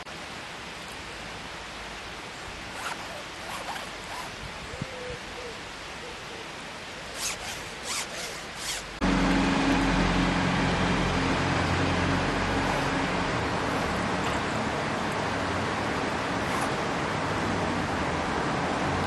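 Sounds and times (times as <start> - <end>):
metal zipper zipping: 2.8 - 4.4, 7.2 - 8.9, 16.4 - 16.8
bus engine drone: 8.4 - 19.0.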